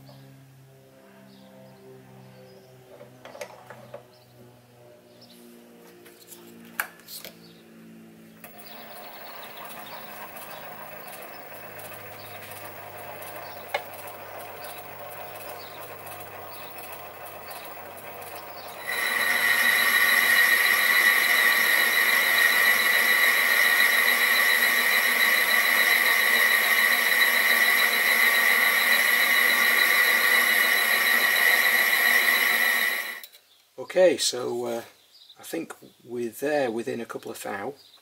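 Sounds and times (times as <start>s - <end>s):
lathe running: 8.4s - 33.2s
high-pitched whine: 16.6s - 33.2s.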